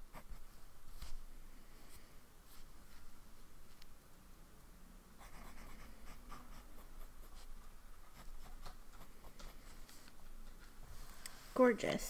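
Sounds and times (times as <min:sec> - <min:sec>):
fountain pen scratching paper: 0:05.2 - 0:09.6.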